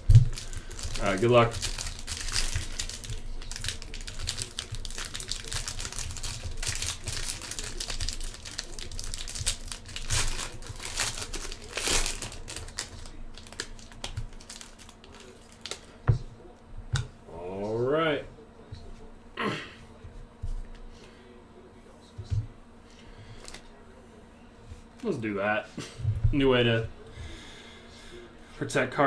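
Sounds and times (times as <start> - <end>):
foil pack crinkling: 0.0 - 16.0.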